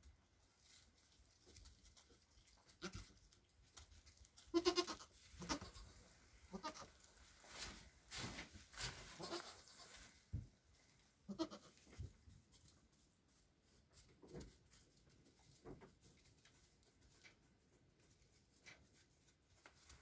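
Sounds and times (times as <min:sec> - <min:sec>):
hooves rustling in wood shavings: 0:00.0 - 0:20.0
goats bleating: 0:04.5 - 0:05.9, 0:06.5 - 0:06.9, 0:09.2 - 0:09.9.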